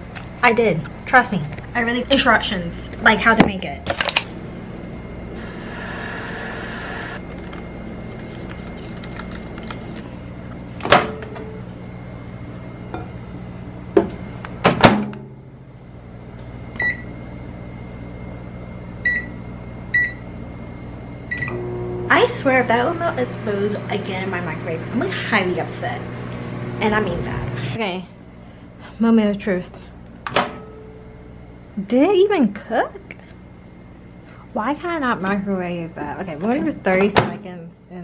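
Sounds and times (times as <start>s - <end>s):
steady low hum: 0.0s - 38.0s
microwave keypad beeps: 16.8s - 17.1s, 19.0s - 20.2s, 21.3s - 21.6s.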